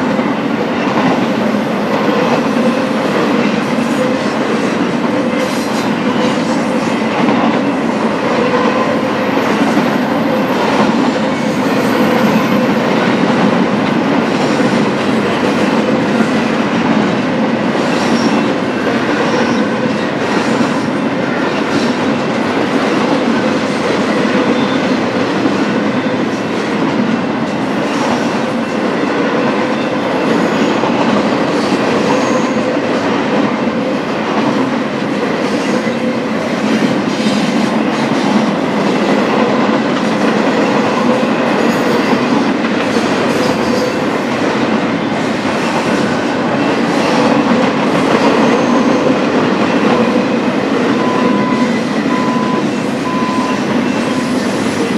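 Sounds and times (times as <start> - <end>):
freight train wheels rumbling: 0.0 - 54.9.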